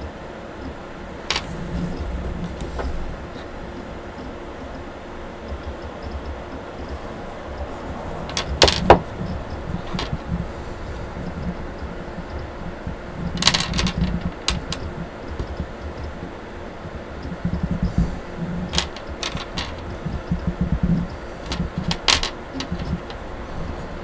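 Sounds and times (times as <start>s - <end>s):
handling noise rumble: 0.6s - 24.0s
plastic parts clicking: 1.3s - 3.0s, 7.6s - 10.4s, 13.3s - 16.2s, 18.7s - 20.6s, 21.4s - 23.3s.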